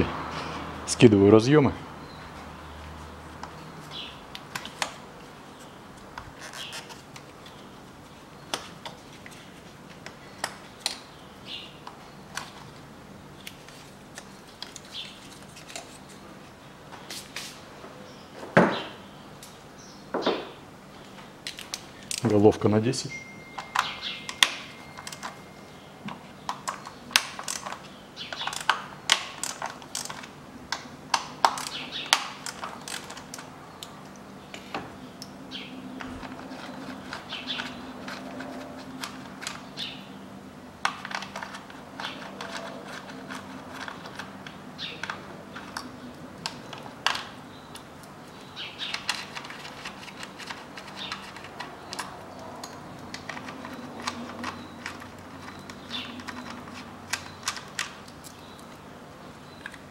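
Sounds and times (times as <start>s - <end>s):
metal tool clinking on engine: 23.1s - 25.7s.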